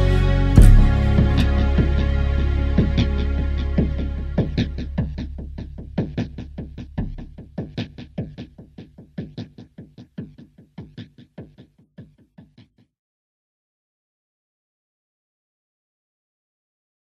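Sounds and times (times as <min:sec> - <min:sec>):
low drone: 0:00.0 - 0:07.0
fast beat of short hits: 0:00.6 - 0:12.7.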